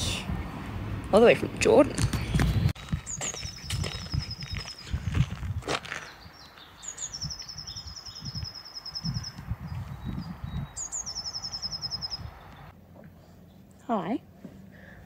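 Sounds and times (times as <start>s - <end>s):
songbird trilling: 3.0s - 5.0s, 6.0s - 12.7s.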